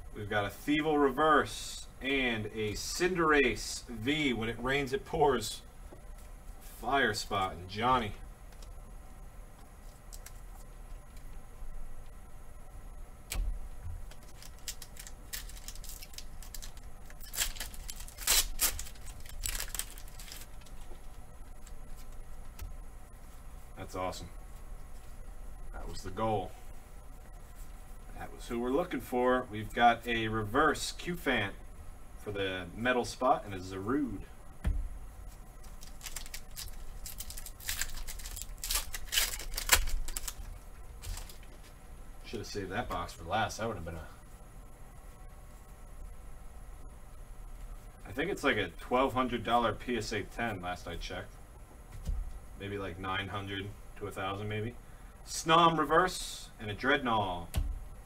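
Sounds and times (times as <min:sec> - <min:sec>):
foil pack crinkling and tearing: 0:14.1 - 0:22.2, 0:35.6 - 0:41.7.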